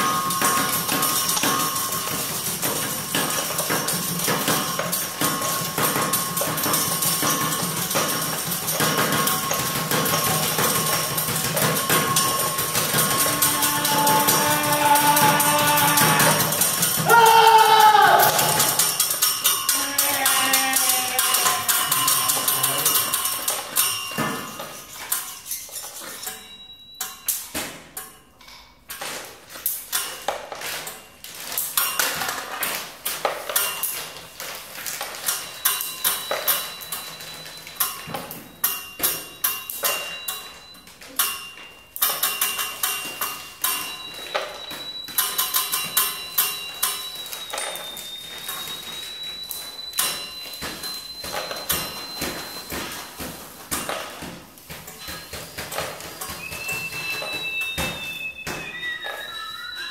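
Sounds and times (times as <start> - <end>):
high ringing tone: 0.0 - 28.5, 33.5 - 59.9
pitched sound sliding downward: 58.4 - 59.9.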